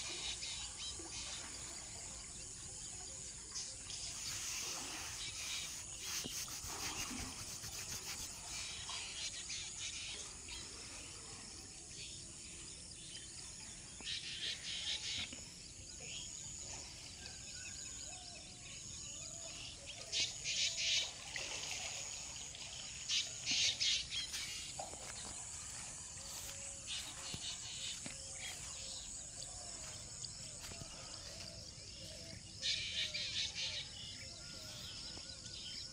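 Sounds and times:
insects droning: 0:20.1 - 0:35.9
birds calling: 0:23.1 - 0:34.4.

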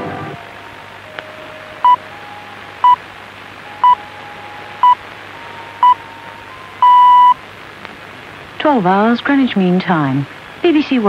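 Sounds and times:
short high beeps: 0:06.8 - 0:07.4.

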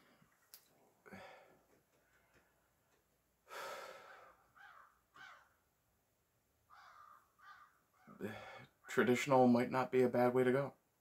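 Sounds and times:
man exhaling heavily: 0:03.5 - 0:04.4.

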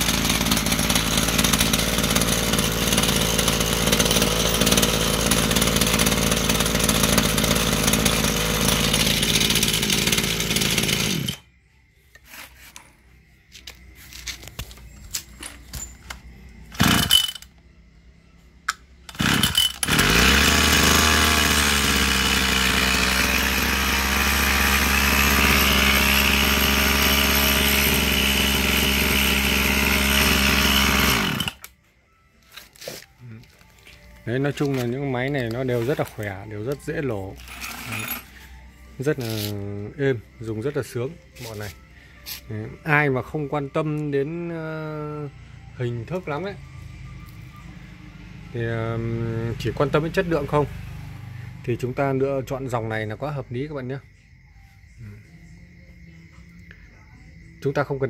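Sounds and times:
engine starting bursts: 0:00.0 - 0:11.4, 0:16.7 - 0:17.4, 0:19.1 - 0:31.6
brush cutter engine running: 0:00.0 - 0:11.5, 0:16.7 - 0:17.4, 0:19.1 - 0:31.7.

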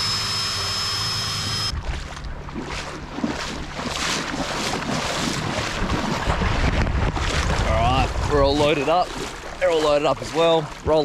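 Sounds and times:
fuel pump whining: 0:00.0 - 0:01.8
water sloshing in shallows: 0:01.2 - 0:11.0
wind buffeting microphone: 0:01.7 - 0:11.0.

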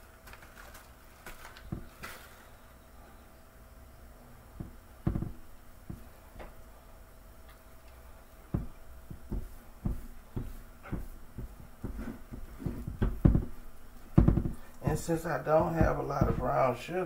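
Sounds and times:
hand patting raw ribs: 0:01.4 - 0:02.2, 0:04.6 - 0:06.6, 0:08.4 - 0:16.8.

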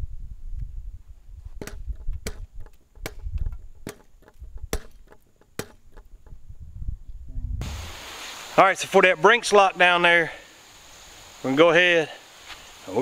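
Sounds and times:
low rumble: 0:06.4 - 0:08.1.

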